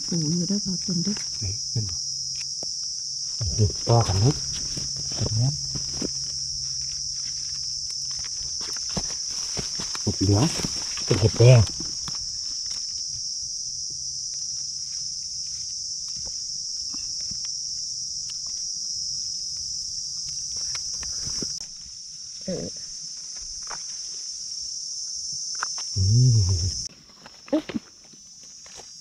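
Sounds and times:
high-pitched insect chorus: 0.0s - 29.0s
footsteps in leaf litter: 4.3s - 12.0s
person exclaiming: 26.0s - 26.8s.

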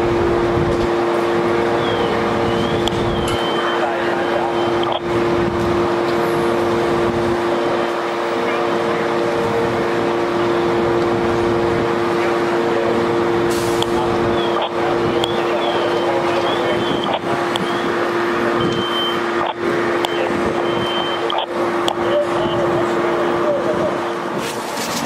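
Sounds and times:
fire engine drone: 0.0s - 25.0s
short high beeps: 1.8s - 5.0s, 18.6s - 21.5s.

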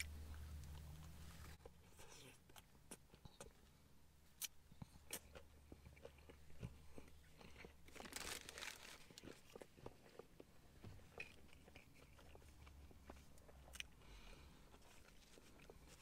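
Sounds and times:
close-up chewing: 4.4s - 16.0s
paper wrapping rustling: 7.9s - 9.2s.

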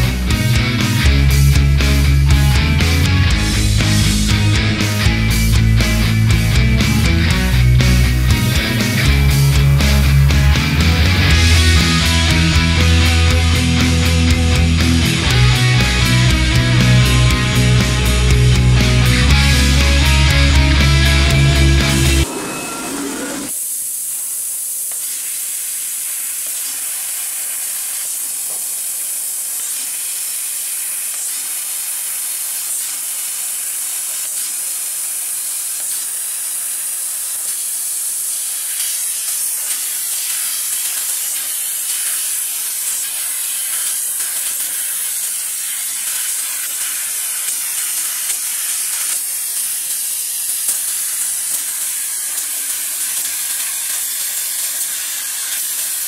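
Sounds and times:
high hiss of laser cutter gas: 21.7s - 56.0s.

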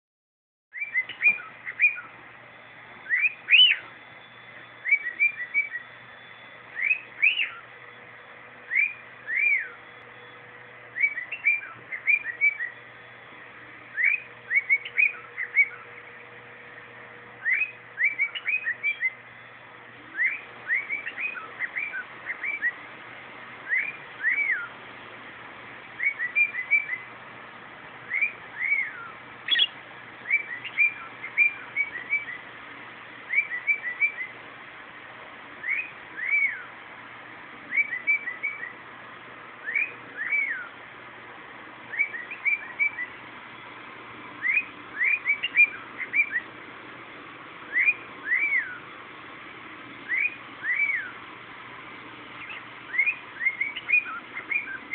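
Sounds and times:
cockatiel whistling: 0.7s - 2.1s, 3.0s - 7.7s, 8.7s - 12.8s, 13.9s - 16.1s, 17.4s - 19.2s, 20.1s - 22.8s, 23.6s - 24.7s, 26.0s - 27.1s, 28.1s - 32.4s, 33.3s - 34.4s, 35.6s - 36.7s, 37.7s - 38.8s, 39.6s - 40.8s, 41.9s - 43.2s, 44.4s - 46.5s, 47.7s - 49.0s, 50.0s - 51.2s, 52.4s - 54.9s.

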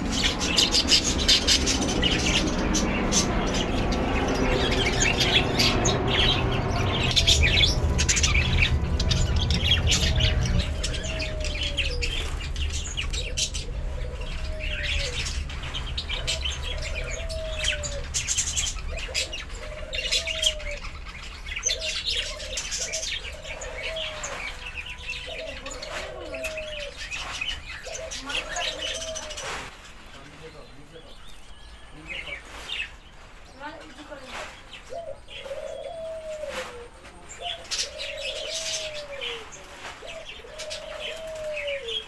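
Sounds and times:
low rumble: 0.0s - 19.1s
budgerigars chirping: 0.0s - 36.1s
lower note rising and falling: 0.3s - 12.0s.

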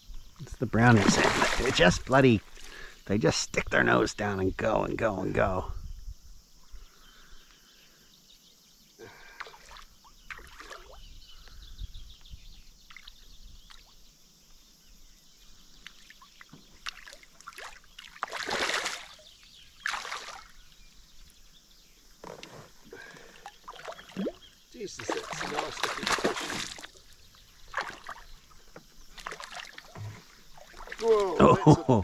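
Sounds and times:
fish splashing in water: 0.8s - 2.7s, 15.8s - 20.6s, 23.4s - 28.4s, 29.1s - 31.5s.

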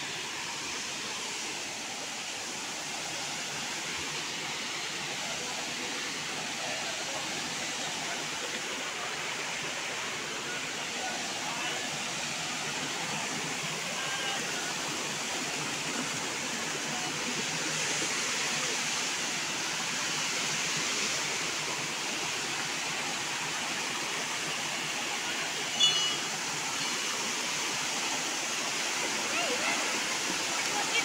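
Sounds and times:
stream running over rocks: 0.0s - 31.0s
short high-pitched sound: 25.8s - 26.3s.

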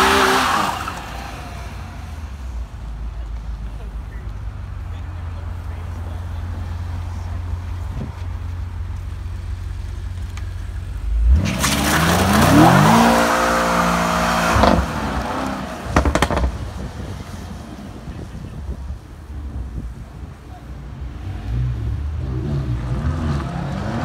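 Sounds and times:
car engine revving hard: 0.0s - 1.5s, 11.1s - 16.6s, 21.4s - 24.0s
engine idle rumble: 7.1s - 11.1s
exhaust pops: 14.5s - 17.2s.

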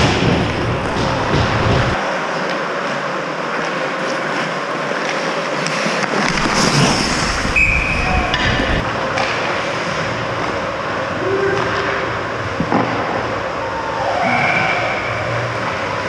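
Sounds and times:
skates scraping ice: 0.3s - 10.7s.

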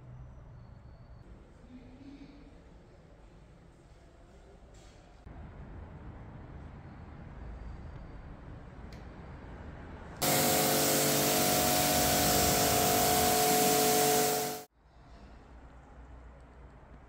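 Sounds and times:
pressurized spray hiss: 10.2s - 14.7s
steady machine hum: 10.2s - 14.7s.

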